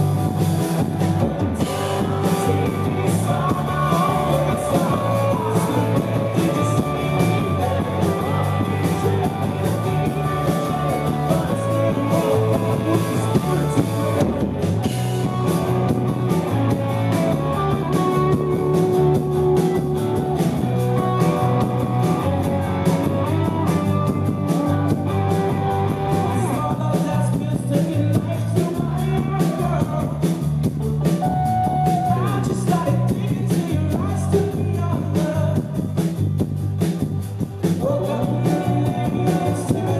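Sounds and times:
bass guitar: 0.0s - 39.9s
drums: 0.0s - 39.9s
electric guitars: 0.0s - 39.9s
person singing: 1.4s - 14.6s, 31.3s - 35.8s, 37.8s - 39.9s.

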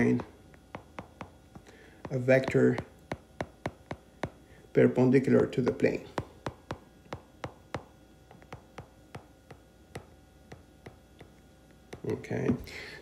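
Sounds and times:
stylus tapping on glass screen: 0.1s - 4.4s, 6.1s - 12.1s.

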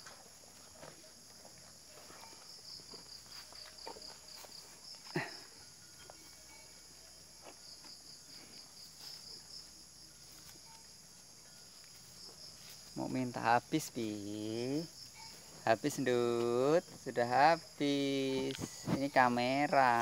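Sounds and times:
insect hiss: 0.0s - 20.0s
insect pulsing chirp: 1.5s - 20.0s.

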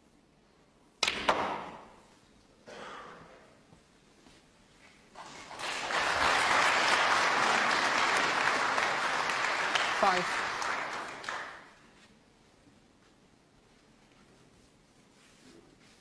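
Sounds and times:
audience applause: 5.2s - 11.7s.

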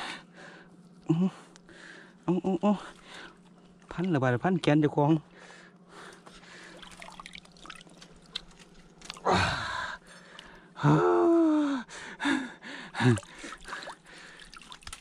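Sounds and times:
man gasping: 9.2s - 14.4s.

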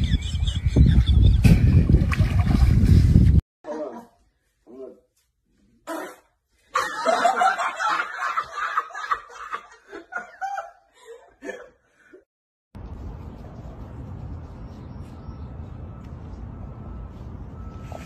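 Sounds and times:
people laughing: 6.7s - 11.6s.

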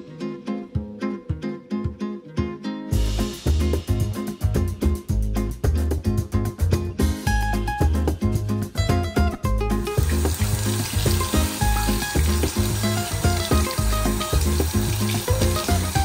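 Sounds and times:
music with plucked melody and bass: 0.0s - 16.0s
tap water running into sink: 9.8s - 16.0s.

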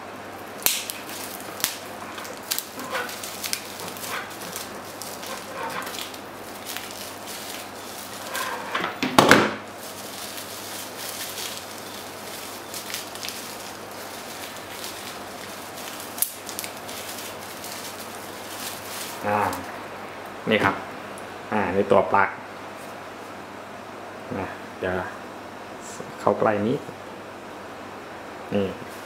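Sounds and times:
plastic bag crinkling: 0.6s - 9.0s, 9.6s - 19.8s.

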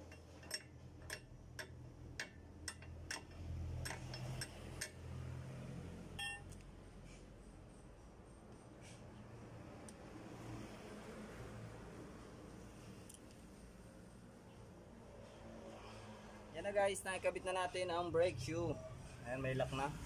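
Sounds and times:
sharp metal clicks: 0.0s - 5.0s.

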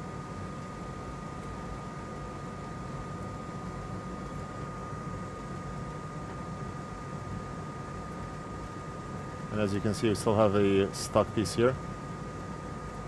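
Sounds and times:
electric fan rushing with whine: 0.0s - 13.0s.

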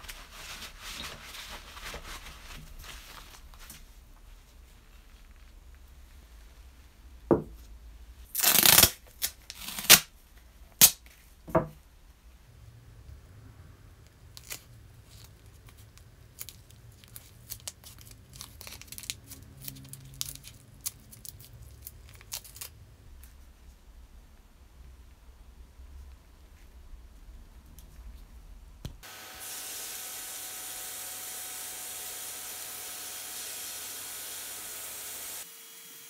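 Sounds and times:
masking tape ripping: 8.3s - 10.1s, 10.8s - 11.0s
tape crinkling: 8.3s - 10.1s, 14.3s - 22.8s.

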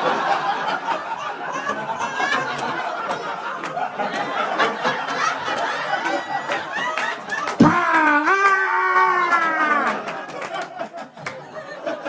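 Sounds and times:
audience laughing: 0.0s - 12.0s
hand claps: 2.5s - 7.8s, 9.9s - 11.4s.

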